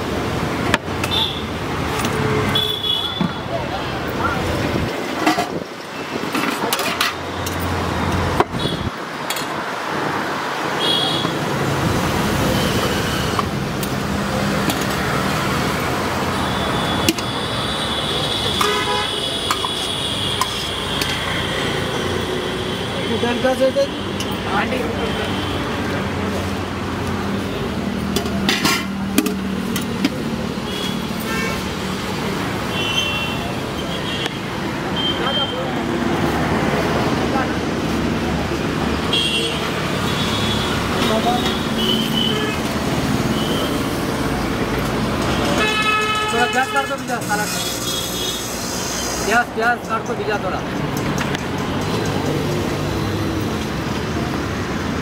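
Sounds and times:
passing vehicles road noise: 0.0s - 55.0s
car horn toots: 16.6s - 19.7s.

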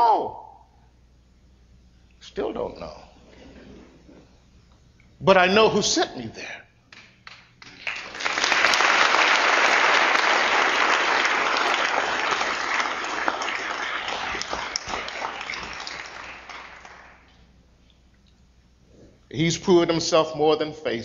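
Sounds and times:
audience applauding: 6.9s - 17.3s.

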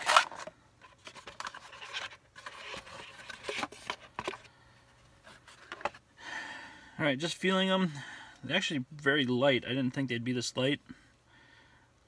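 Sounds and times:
cardboard scraping and rustling: 0.0s - 4.5s.

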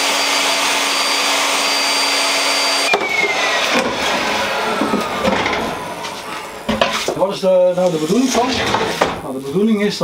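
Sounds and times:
table saw motor whine: 0.0s - 6.9s
wood knocking: 6.7s - 7.2s.

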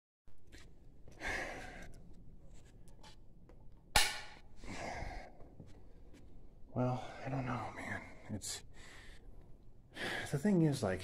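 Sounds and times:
person breathing and sighing: 4.6s - 5.7s.

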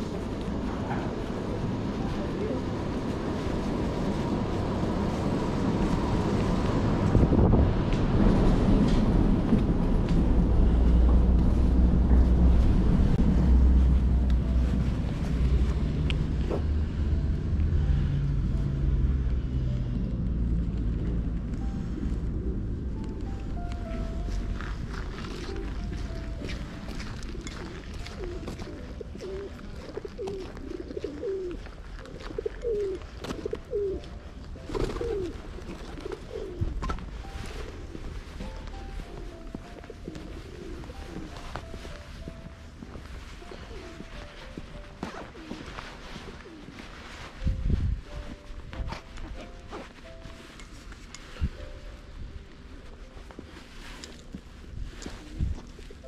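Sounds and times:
steady low rumble: 0.0s - 31.0s, 31.6s - 56.0s
pigeons cooing: 27.2s - 38.1s, 39.8s - 41.4s, 45.0s - 46.7s.

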